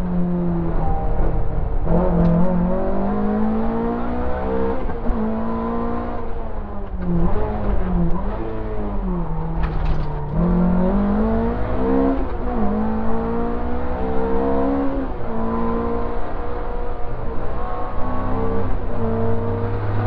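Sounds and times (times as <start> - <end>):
rally car engine revving: 0.0 - 20.0.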